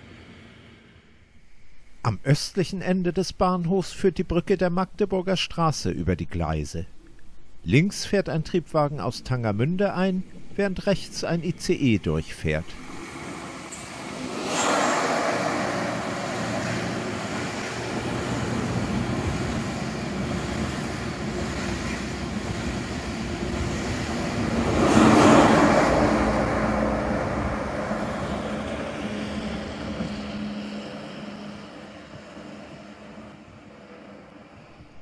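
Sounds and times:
railcar arriving: 0.0s - 1.6s, 12.8s - 35.0s
high-speed train passing: 0.0s - 2.0s, 12.4s - 35.0s.

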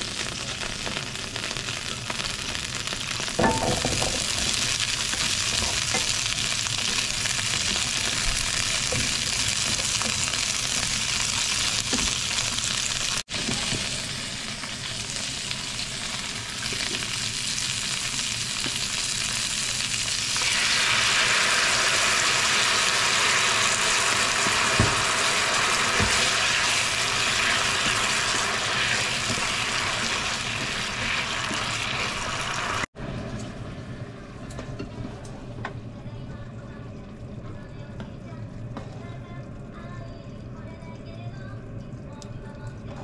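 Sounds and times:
vegetables sizzling in a frying pan: 0.0s - 33.4s.

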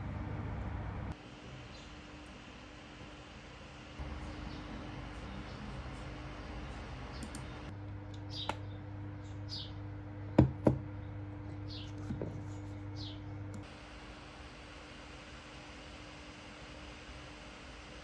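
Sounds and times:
steady hum: 0.0s - 18.0s
sharp clicks: 7.2s - 7.5s
faint bird chirps: 8.3s - 9.8s, 12.9s - 13.3s.

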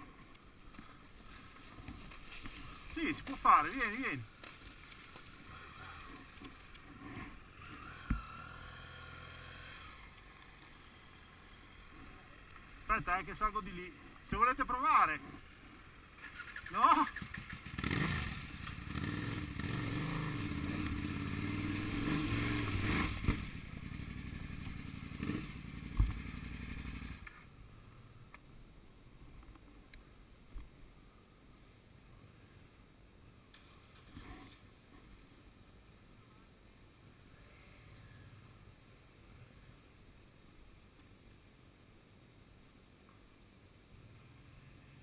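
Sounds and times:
faint background noise: 0.0s - 45.0s
motorcycle engine revving: 4.4s - 12.8s, 16.1s - 27.4s.

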